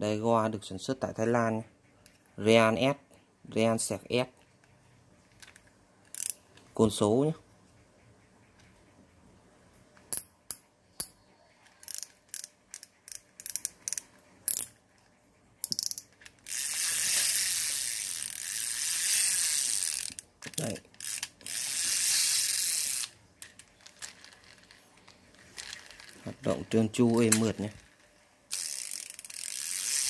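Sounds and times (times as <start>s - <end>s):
fishing reel clicking: 6.1s - 6.4s, 11.7s - 14.8s, 15.6s - 23.2s, 25.5s - 30.0s
fishing reel whirring: 6.1s - 6.4s, 11.8s - 14.7s, 15.6s - 23.2s, 25.4s - 30.0s.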